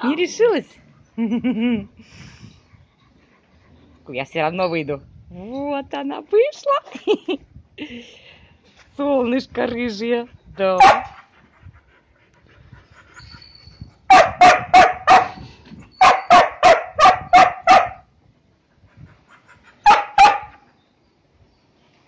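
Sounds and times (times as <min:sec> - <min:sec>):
dog barking: 0:10.8 - 0:11.2, 0:14.1 - 0:15.4, 0:16.0 - 0:18.1, 0:19.8 - 0:20.6.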